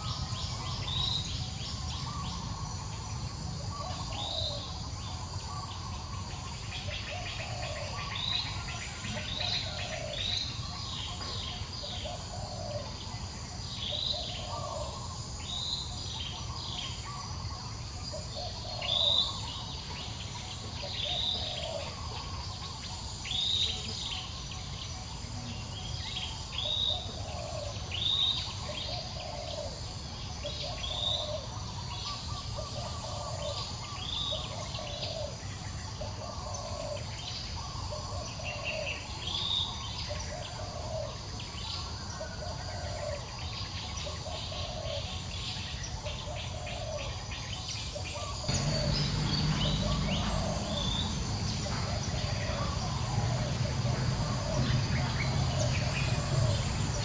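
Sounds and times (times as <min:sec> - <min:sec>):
low bird call: 0:47.9 - 0:57.0.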